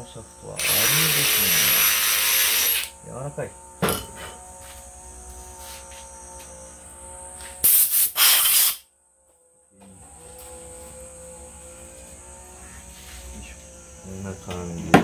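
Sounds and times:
faint steady tonal hum: 0:00.0 - 0:07.6, 0:08.8 - 0:14.9
hissing spray from nozzle: 0:00.6 - 0:02.9, 0:07.5 - 0:08.8.

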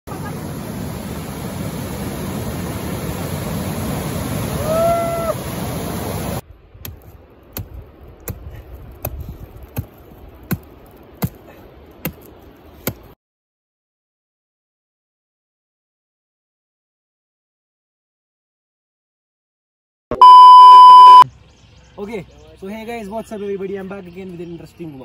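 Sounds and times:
stream rushing over rocks: 0:00.1 - 0:06.4.

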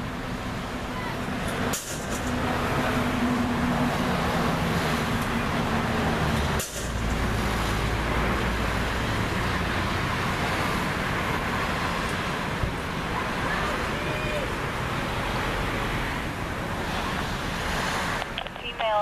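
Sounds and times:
traffic noise: 0:00.0 - 0:19.0.

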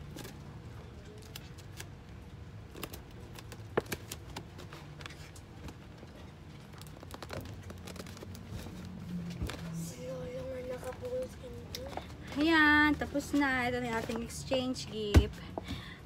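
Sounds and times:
paper crinkling and rustling: 0:00.0 - 0:12.4.

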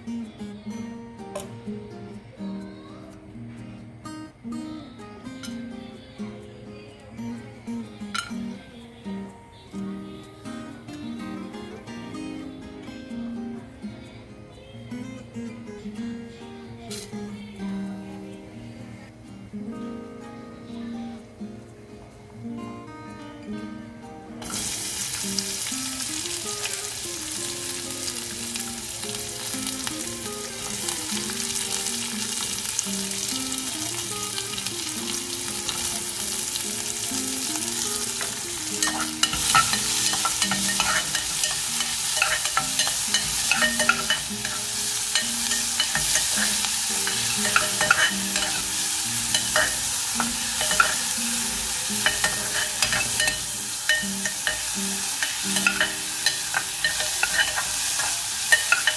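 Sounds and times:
onions sizzling in oil: 0:16.9 - 0:18.3, 0:24.4 - 0:58.9
metal spoon scraping pot: 0:38.8 - 0:48.7, 0:49.3 - 0:51.1, 0:52.0 - 0:58.9.

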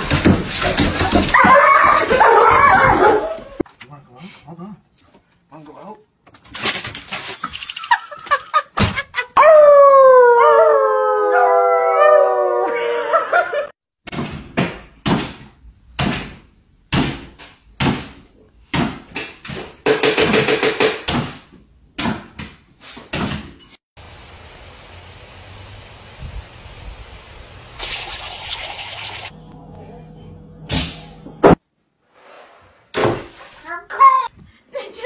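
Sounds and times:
dog howling: 0:01.3 - 0:03.6, 0:09.4 - 0:13.5
lawn sprinkler hissing spray: 0:24.0 - 0:29.4.

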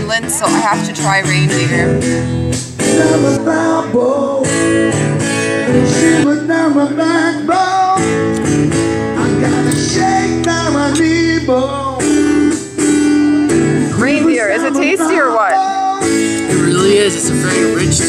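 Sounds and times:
strummed acoustic guitar: 0:00.0 - 0:18.0
person singing: 0:02.8 - 0:04.8, 0:05.5 - 0:08.5, 0:09.1 - 0:12.2, 0:13.9 - 0:18.0.

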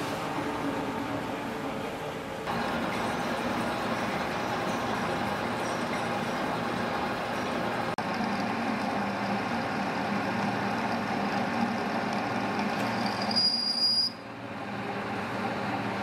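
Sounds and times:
high steady squeal: 0:12.8 - 0:14.3.

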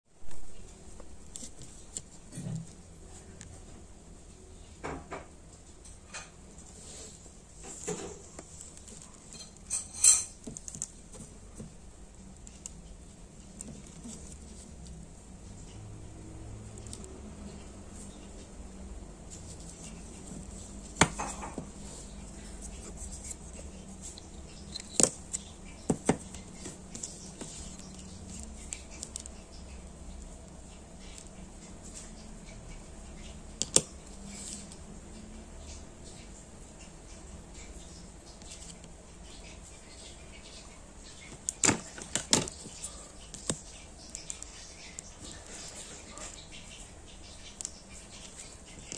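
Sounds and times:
plastic fan handled on a tabletop: 0:19.8 - 0:21.9, 0:22.7 - 0:29.3, 0:41.3 - 0:43.6.

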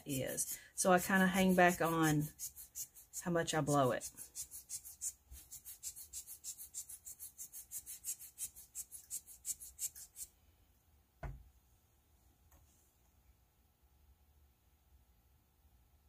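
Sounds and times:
thump: 0:11.2 - 0:11.5.

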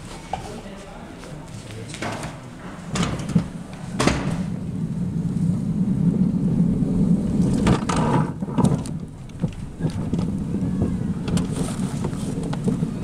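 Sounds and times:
coaster sled rumbling on track: 0:01.4 - 0:13.0
sharp knocks and rattles: 0:02.0 - 0:04.6.

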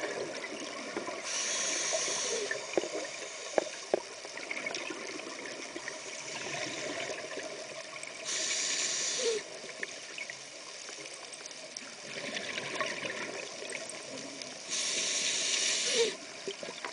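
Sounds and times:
underwater exhaust bubbles gurgling: 0:00.0 - 0:16.9
regulator inhalation hiss: 0:01.2 - 0:04.0, 0:08.2 - 0:09.6, 0:14.6 - 0:16.3.

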